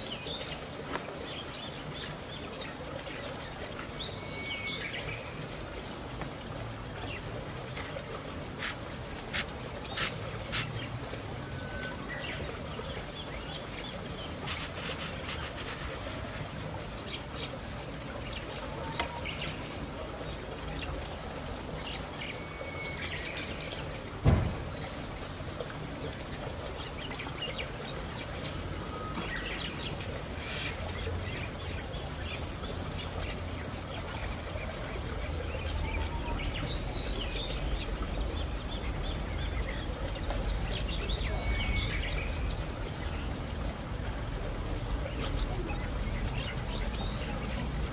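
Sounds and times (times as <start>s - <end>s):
small birds chirping: 7.0s - 24.0s, 26.0s - 43.8s
sharp thump: 24.2s - 24.7s.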